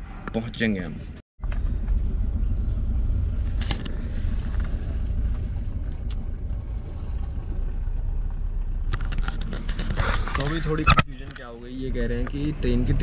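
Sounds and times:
car engine rumble inside cabin: 1.4s - 13.0s.

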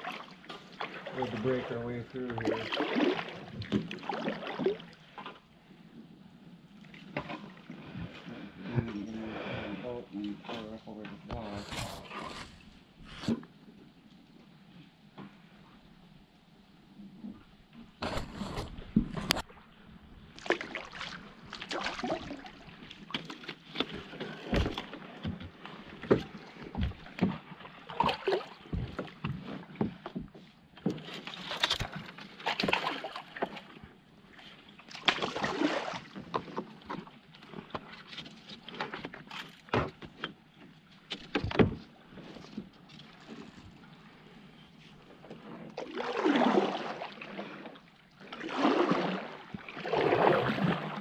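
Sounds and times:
paddle splashes and drips: 0.0s - 5.4s, 6.7s - 8.8s, 19.4s - 51.0s
paddle knocking against hull: 23.9s - 33.6s.

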